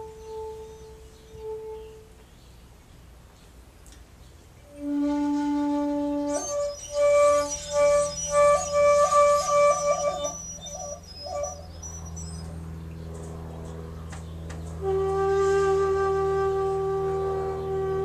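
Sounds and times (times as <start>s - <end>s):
bamboo flute solo: 0.0s - 2.2s, 4.7s - 12.6s, 14.8s - 18.0s.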